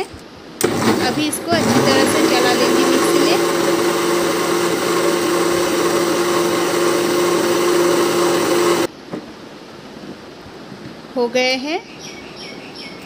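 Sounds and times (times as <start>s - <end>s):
mixer grinder blending: 0.6s - 8.9s.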